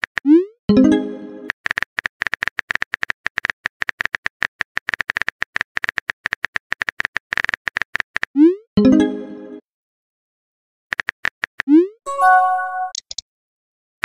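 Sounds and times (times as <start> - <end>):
phone keyboard typing clicks: 12.9 - 13.2.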